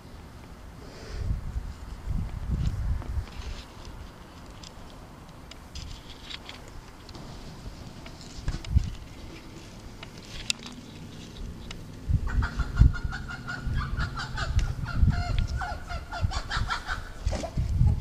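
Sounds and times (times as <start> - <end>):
chickens calling: 12.2 - 18.0.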